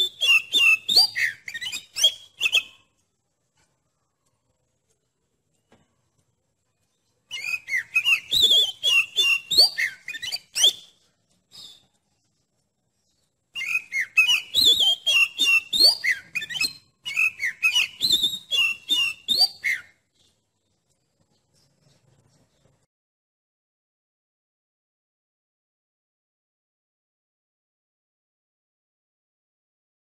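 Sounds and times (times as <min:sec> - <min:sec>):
magpie-robin singing: 0:00.0 - 0:02.9, 0:07.0 - 0:11.9, 0:13.0 - 0:20.6.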